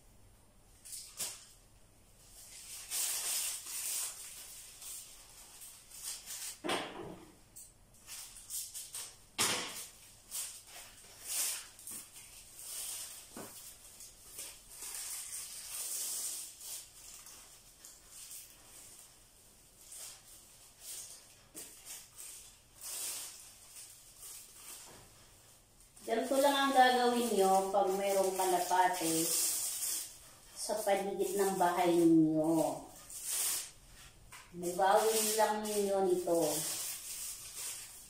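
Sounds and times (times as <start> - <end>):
plastic strips rustling: 0.8 - 1.6, 2.2 - 6.7, 7.9 - 38.0.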